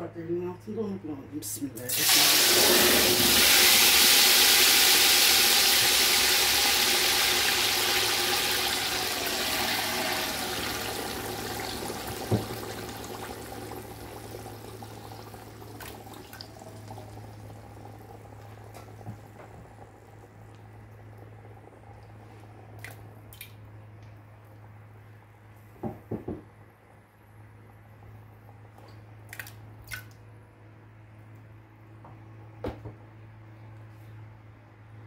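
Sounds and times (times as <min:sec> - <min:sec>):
tomato pulp sizzling in hot oil: 0:01.9 - 0:18.7
knock: 0:12.3 - 0:12.6, 0:25.8 - 0:26.5.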